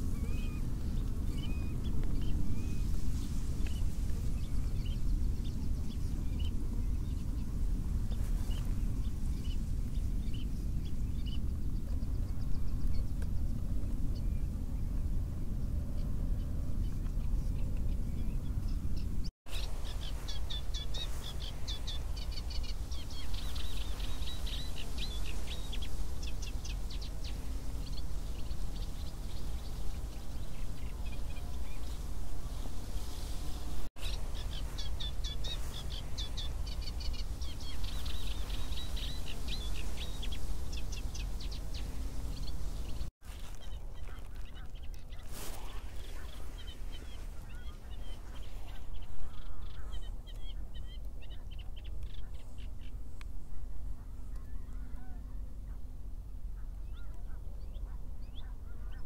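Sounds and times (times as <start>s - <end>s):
small bird chirping: 16.8s - 53.0s.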